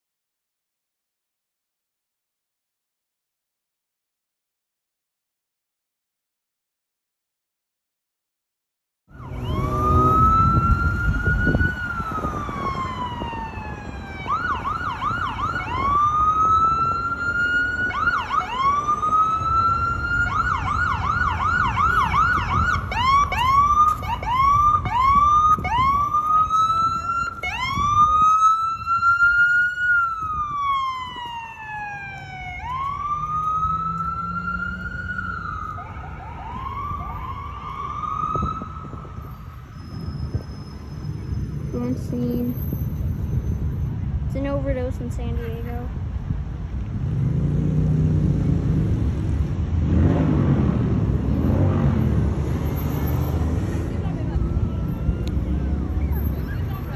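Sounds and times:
fire engine siren wail and yelp: 9.1s - 44.1s, 48.1s - 56.9s.

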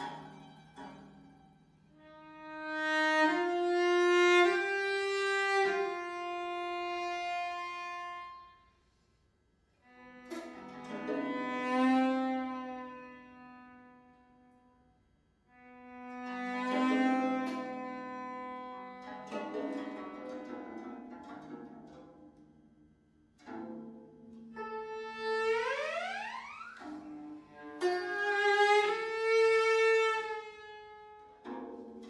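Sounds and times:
plucked zheng notes: 0.0s - 8.6s, 9.9s - 14.6s, 15.7s - 32.0s
bowed cello notes: 0.0s - 8.8s, 9.8s - 32.0s.

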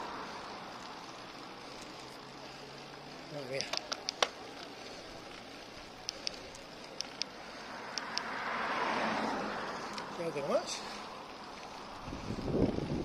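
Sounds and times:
wind and road noise: 0.0s - 13.0s.

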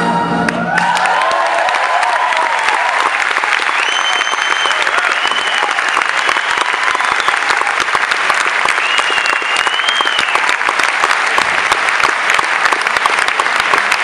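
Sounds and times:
audience applauding: 0.4s - 14.0s
high whistle from crowd: 3.6s - 7.7s, 8.6s - 10.5s.

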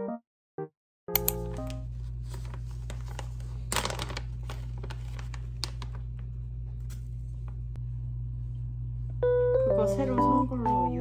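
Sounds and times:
plastic packaging crinkling: 1.5s - 7.0s.

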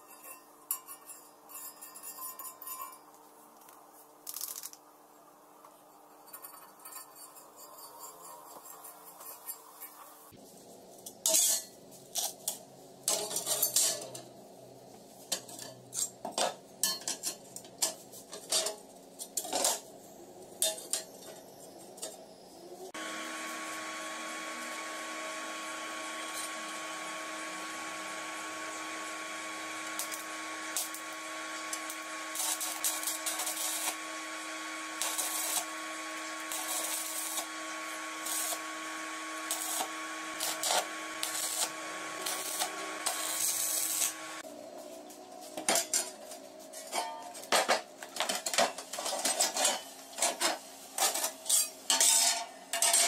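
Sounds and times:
stick welder humming: 22.9s - 44.5s
welding arc crackling: 23.0s - 44.4s.

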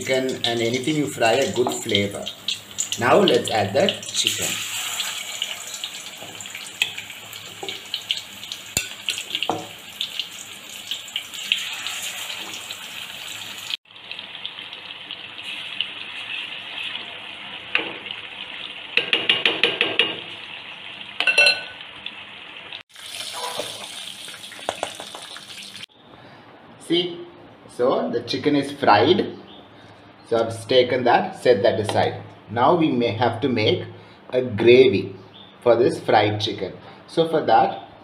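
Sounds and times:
chicken deep-frying in oil: 0.0s - 25.9s
metal spoon clinking against pot: 8.8s - 9.6s, 21.2s - 21.8s.

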